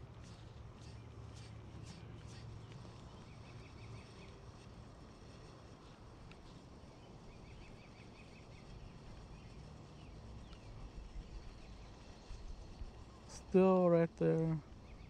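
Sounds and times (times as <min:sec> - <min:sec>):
bird chirping: 0:00.3 - 0:04.4, 0:06.9 - 0:12.6, 0:14.8 - 0:15.0.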